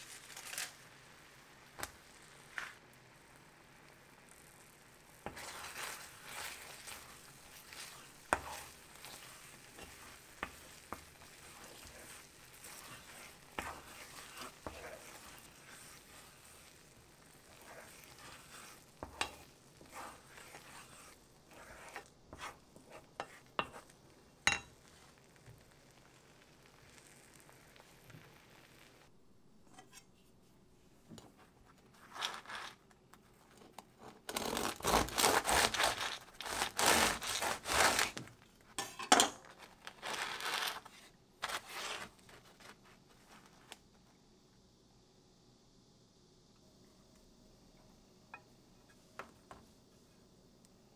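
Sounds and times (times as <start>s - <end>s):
food sizzling in a pan: 0.0s - 29.1s
rustling and scraping: 5.2s - 23.9s, 29.6s - 44.1s.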